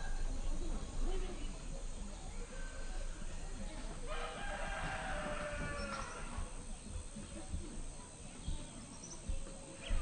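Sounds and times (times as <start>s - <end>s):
rooster crowing: 4.1s - 6.3s.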